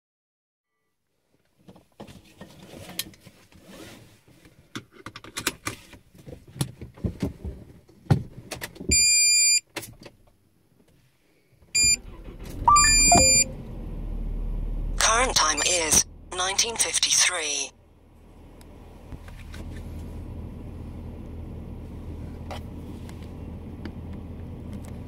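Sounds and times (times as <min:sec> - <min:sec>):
handling clicks and rustles in car: 0:01.6 - 0:08.9, 0:09.7 - 0:11.0, 0:22.3 - 0:25.0
car engine starting and running: 0:11.7 - 0:25.0
electronic beeps: 0:12.7 - 0:13.6.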